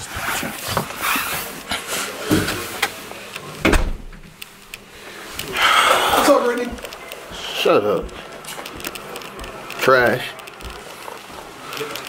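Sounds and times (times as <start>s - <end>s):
footsteps on carpeted stairs: 6.2s - 9.6s, 10.6s - 11.5s.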